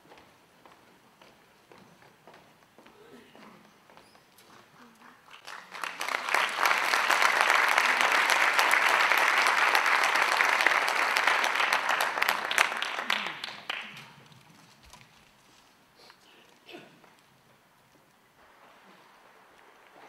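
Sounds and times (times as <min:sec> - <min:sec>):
audience applauding: 0:05.2 - 0:14.5.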